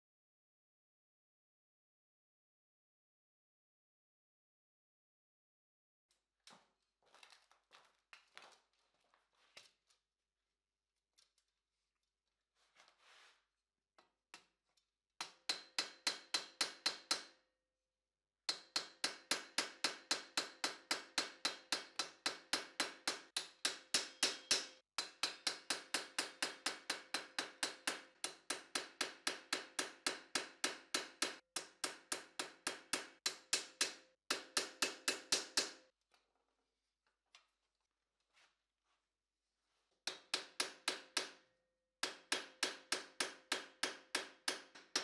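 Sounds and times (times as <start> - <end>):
hammer striking steel punch: 15.2 - 17.3, 18.5 - 35.8, 42.0 - 45.0.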